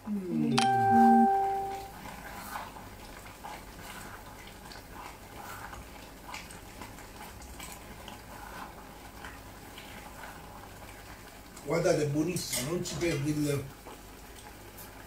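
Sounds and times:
soup simmering with soft pops: 0.7 - 15.0
wooden spoon scraping a pan: 2.1 - 6.5.

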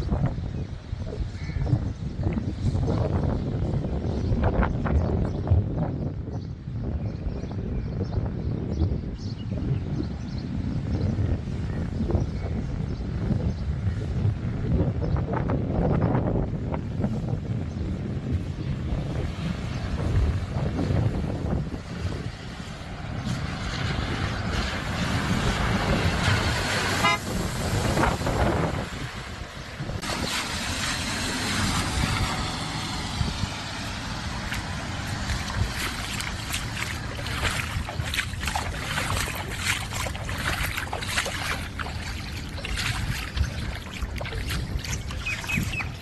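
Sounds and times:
tyres splashing through water: 19.2 - 46.0
high-pitched chirp: 44.8 - 46.0.

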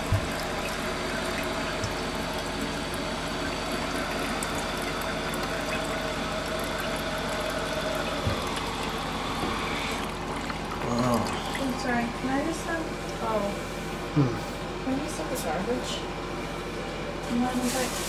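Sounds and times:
water hissing through toilet valve: 0.0 - 11.7.

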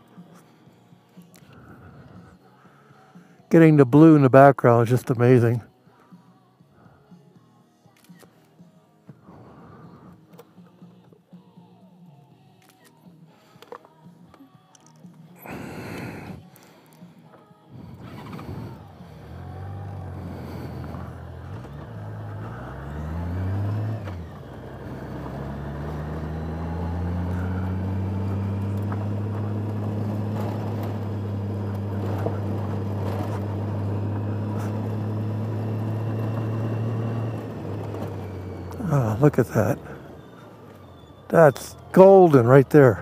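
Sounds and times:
motorcycle engine revving: 17.8 - 43.0.

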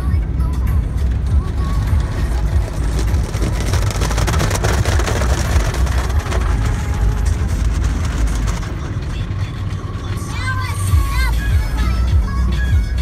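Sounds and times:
car wash rumble: 0.0 - 13.0
cloth strips washing over windshield: 1.0 - 12.1
water and foam spraying: 1.9 - 9.8.

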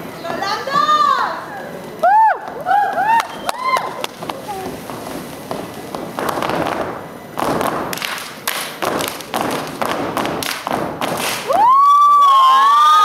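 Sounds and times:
boots stamping: 4.0 - 11.5
hands clapping: 7.9 - 11.6.

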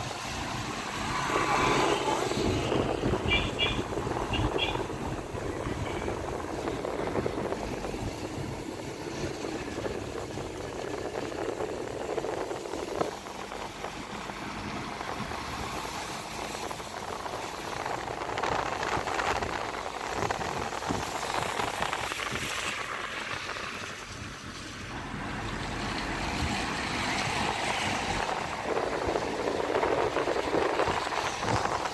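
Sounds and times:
car road and wind noise: 0.0 - 31.9.

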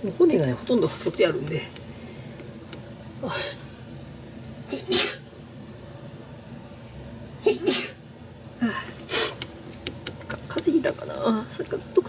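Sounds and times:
man sneezing: 4.7 - 5.2, 7.4 - 8.0.

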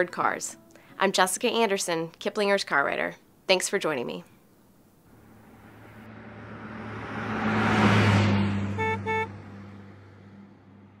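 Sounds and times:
car passing by: 5.1 - 11.0
short car horn beeps: 8.7 - 9.4.

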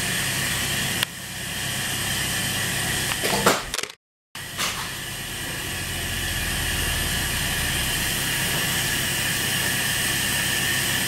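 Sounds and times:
machinery humming and hissing: 4.4 - 11.0
low drone: 5.0 - 10.6.

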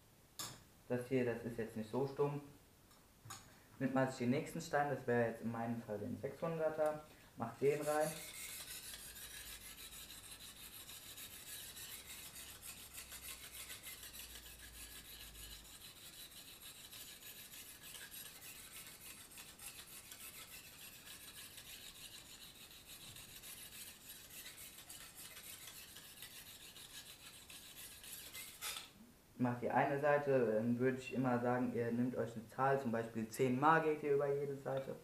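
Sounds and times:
stone rasping on knife blade: 7.6 - 29.0.

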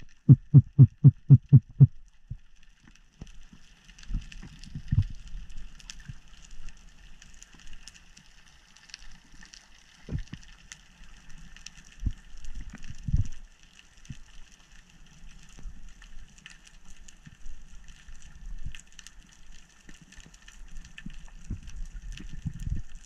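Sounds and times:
dull low thumps: 0.0 - 1.9
underwater crackling and ticks: 0.0 - 23.0.

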